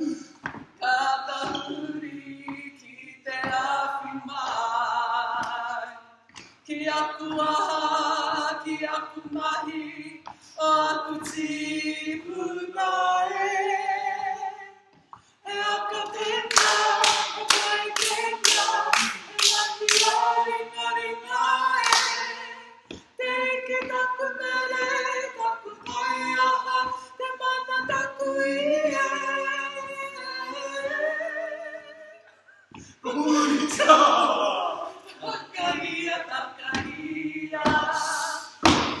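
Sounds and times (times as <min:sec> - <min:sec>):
group singing unaccompanied: 0:00.8 - 0:39.0
sharp claps: 0:16.5 - 0:20.4, 0:21.8 - 0:22.5.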